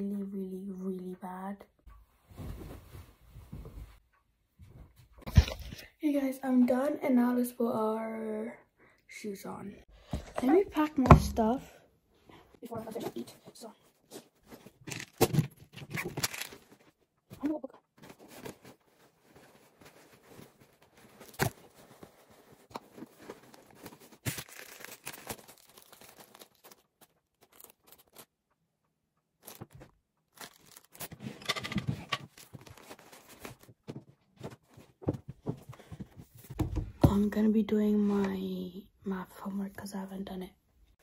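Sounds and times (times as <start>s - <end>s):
papers rustling: 13.0s - 28.3s, 29.4s - 36.8s
fabric bags rustling: 18.0s - 28.2s, 29.4s - 31.3s.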